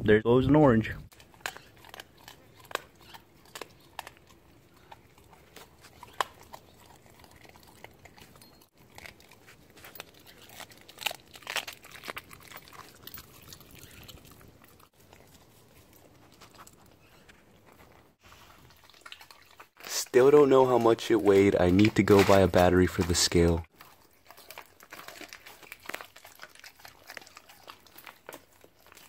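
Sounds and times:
dog chewing and crunching bone: 1.1 - 29.0.

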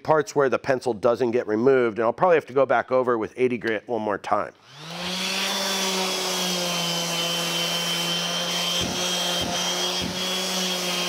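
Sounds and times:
orbital sander humming and whining: 4.6 - 11.0.

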